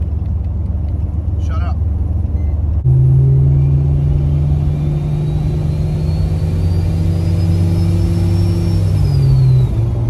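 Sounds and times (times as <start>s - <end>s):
car engine running: 0.0s - 10.0s.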